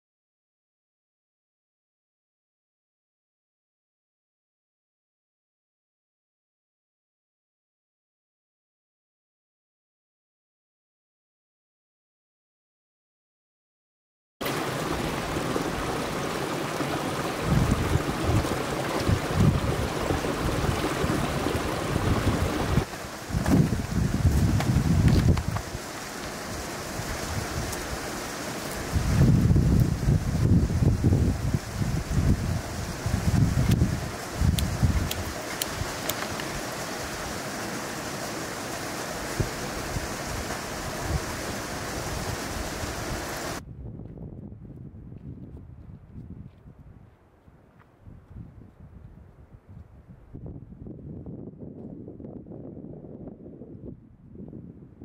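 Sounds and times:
stream running over rocks: 0:14.4 - 0:43.6
wind gusts buffeting microphone: 0:14.5 - 0:37.3, 0:39.1 - 0:47.1, 0:48.0 - 0:55.0.

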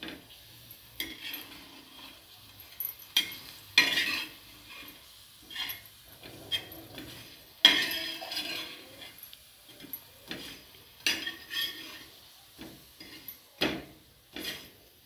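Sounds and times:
spatula scraping and tapping a pan: 0:00.0 - 0:15.0.

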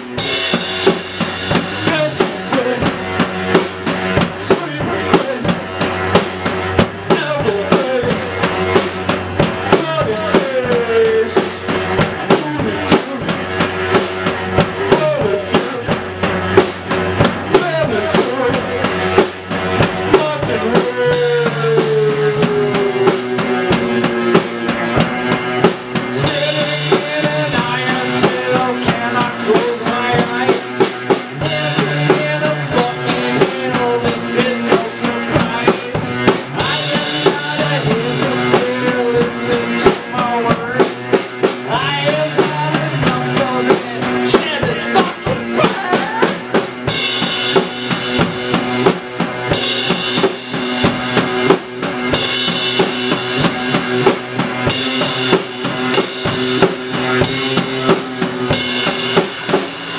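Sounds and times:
drum kit beat: 0:00.0 - 0:59.9
electric guitar: 0:00.0 - 0:59.9
person singing into a microphone: 0:01.7 - 0:03.2, 0:04.4 - 0:05.7, 0:07.0 - 0:08.5, 0:09.5 - 0:13.5, 0:14.8 - 0:16.0, 0:17.5 - 0:19.1, 0:20.0 - 0:23.9, 0:26.1 - 0:46.6.

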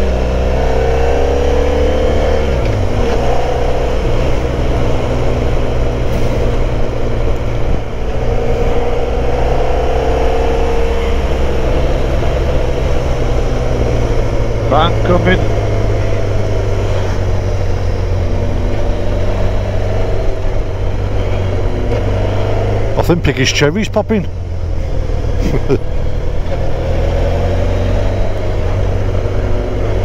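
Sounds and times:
motorcycle engine running: 0:00.0 - 0:23.2
wind and road noise: 0:00.0 - 0:30.0.

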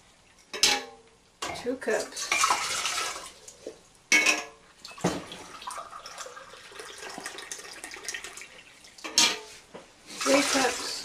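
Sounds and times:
kitchenware clinking: 0:00.4 - 0:02.6, 0:04.1 - 0:05.4, 0:09.0 - 0:09.6
water pouring and splashing: 0:01.9 - 0:03.8, 0:04.8 - 0:11.0.

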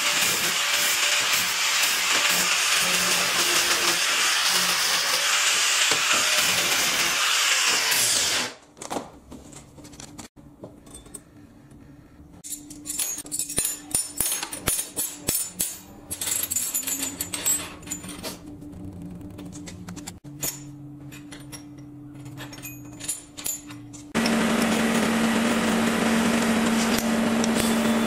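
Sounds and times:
angle grinder grinding steel: 0:00.0 - 0:08.5, 0:24.2 - 0:28.0
spanners clinking on metal bench: 0:12.4 - 0:18.4, 0:20.3 - 0:24.2.

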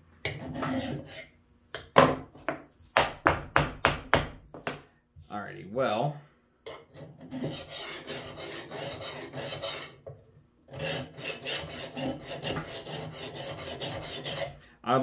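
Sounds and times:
hand file rasping on axe head: 0:00.3 - 0:01.4, 0:06.7 - 0:10.0, 0:10.7 - 0:14.6.

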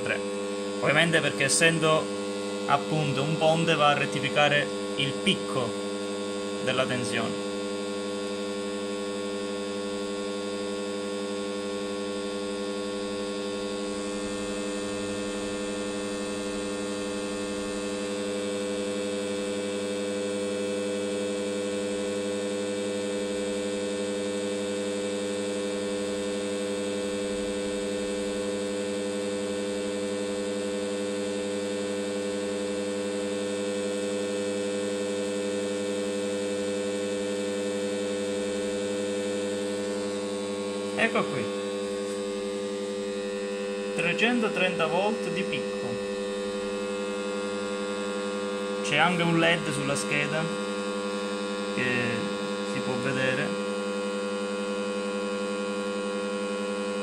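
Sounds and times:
transformer mains hum: 0:00.0 - 0:21.3, 0:36.4 - 0:53.6.

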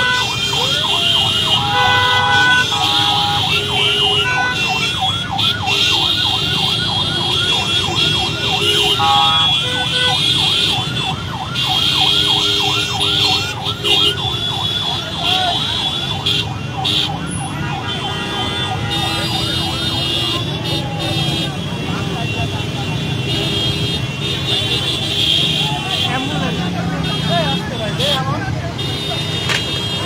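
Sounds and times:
electronic yelp siren: 0:00.0 - 0:21.5
crowd noise: 0:00.0 - 0:30.0
traffic noise: 0:00.0 - 0:30.0
vehicle horns blaring: 0:00.0 - 0:30.0.

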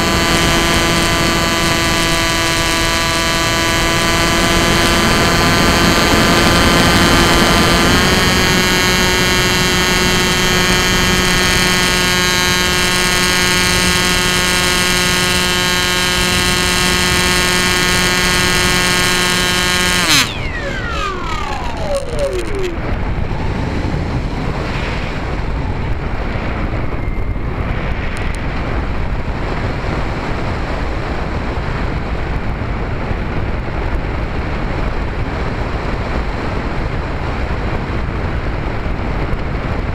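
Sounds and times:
electric motor propeller whine: 0:00.0 - 0:27.4
wind rushing over microphone: 0:00.0 - 0:39.9.

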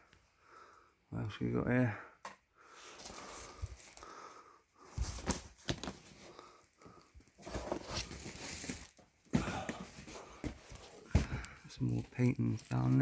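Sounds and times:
rustling and crinkling of bags: 0:02.8 - 0:13.0.

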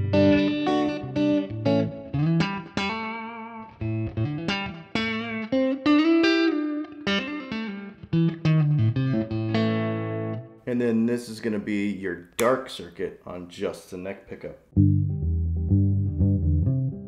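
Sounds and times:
electric guitar notes with bends: 0:00.0 - 0:10.6, 0:14.8 - 0:17.0.

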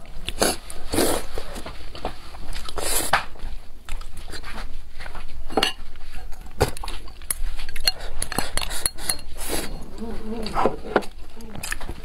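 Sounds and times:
chewing and mouth noises: 0:03.8 - 0:05.1, 0:06.6 - 0:12.0.

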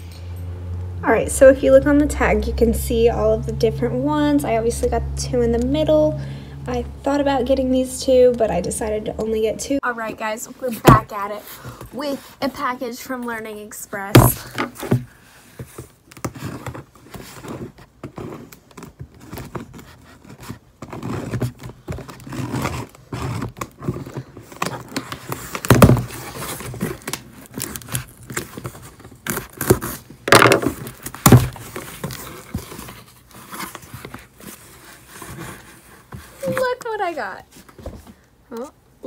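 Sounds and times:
cardboard flaps scraping: 0:14.2 - 0:38.2
blade cutting packing tape: 0:20.8 - 0:32.8.

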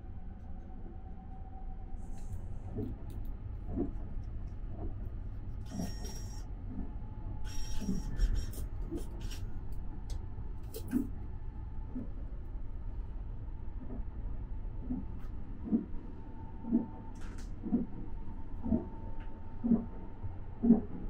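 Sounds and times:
train rumbling: 0:00.0 - 0:21.0.

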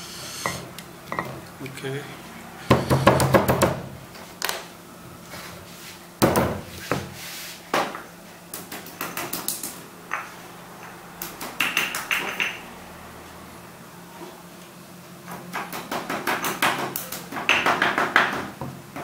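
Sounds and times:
pestle pounding in a mortar: 0:15.5 - 0:19.0.

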